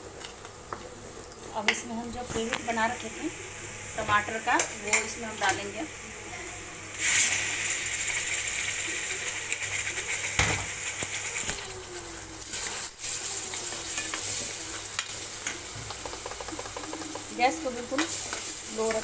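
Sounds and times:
paste sizzling in hot oil: 6.8s - 19.0s.

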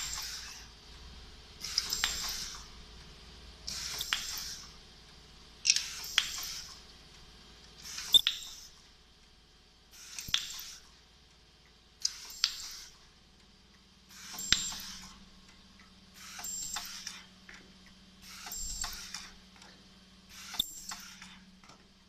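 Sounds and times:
low steady hum: 0.0s - 22.0s
welding machine click: 3.7s - 4.7s, 12.0s - 12.9s, 14.2s - 15.2s.

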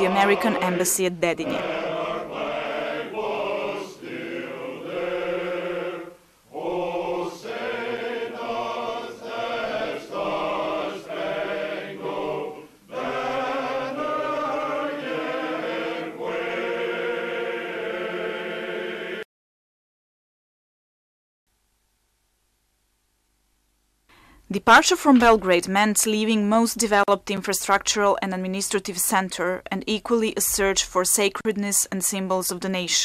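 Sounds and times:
men's choir chanting: 0.0s - 19.2s.

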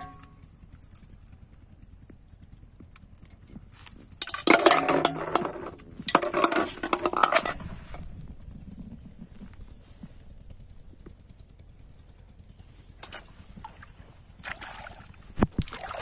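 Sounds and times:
plastic bottles clattering on metal bowl: 4.2s - 7.7s.

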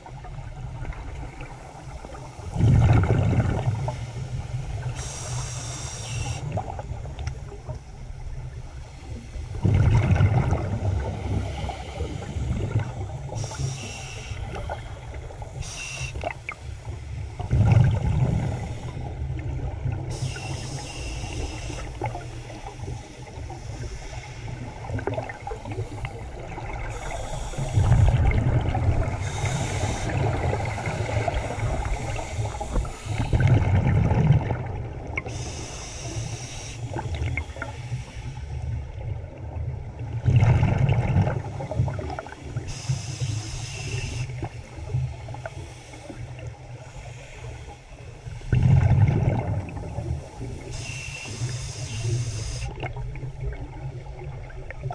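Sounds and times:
exhaled bubbles rumbling: 0.0s - 5.2s, 6.5s - 13.6s, 14.4s - 20.5s, 24.5s - 35.5s, 38.6s - 42.7s, 48.2s - 50.8s, 52.1s - 54.9s
hissing regulator inhalations: 4.8s - 6.6s, 11.3s - 17.4s, 18.4s - 19.2s, 20.1s - 24.8s, 25.4s - 28.2s, 29.1s - 33.5s, 35.2s - 38.6s, 42.5s - 48.5s, 50.2s - 52.8s.

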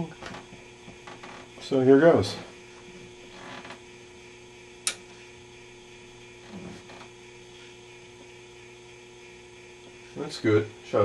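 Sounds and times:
low mains hum: 0.0s - 11.0s
switch click: 4.8s - 5.0s.

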